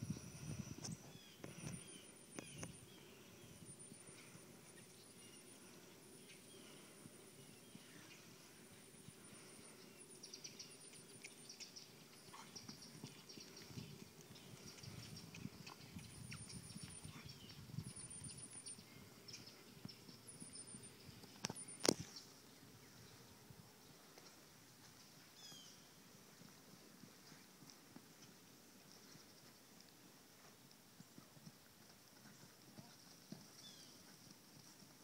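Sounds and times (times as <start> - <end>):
birds chirping: 0.0 - 24.0
horse hooves thudding on ground: 10.8 - 18.6, 24.1 - 35.0.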